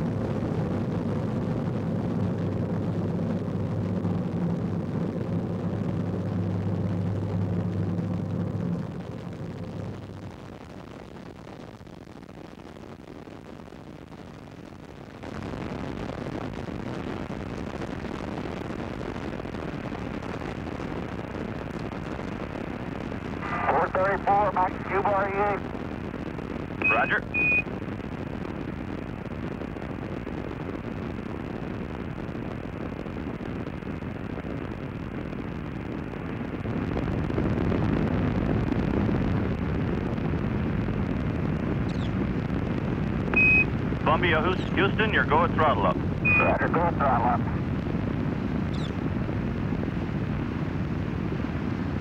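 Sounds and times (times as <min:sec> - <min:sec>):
rocket engines roaring: 0:22.9 - 0:27.8, 0:28.4 - 0:52.0.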